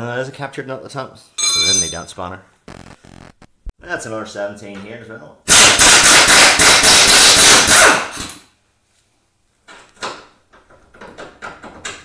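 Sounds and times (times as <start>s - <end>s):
impact wrench hammering: 5.5s - 8.4s.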